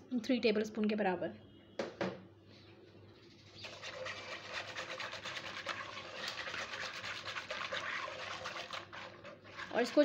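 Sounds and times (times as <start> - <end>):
whisk beating milk in a pot: 3.6 - 10.0.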